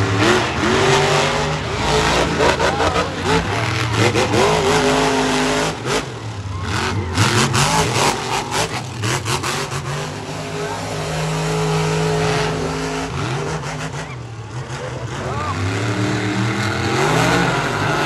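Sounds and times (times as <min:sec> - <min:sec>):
monster truck engine revving: 0:00.0 - 0:18.0.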